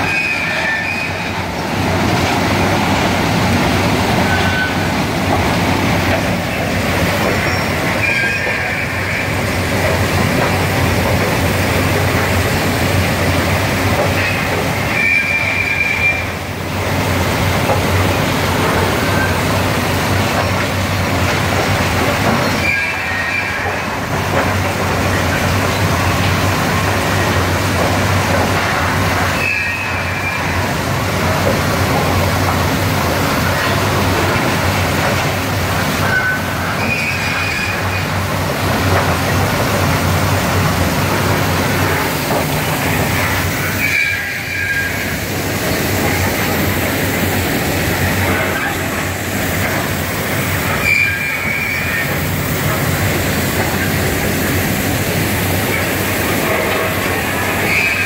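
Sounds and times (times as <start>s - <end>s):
high squeals: 0.0s - 1.5s, 4.0s - 9.5s, 14.2s - 16.4s, 22.4s - 23.9s, 36.0s - 38.1s, 42.7s - 46.2s, 50.6s - 52.3s, 57.2s - 58.0s
rail machinery running: 0.0s - 58.0s.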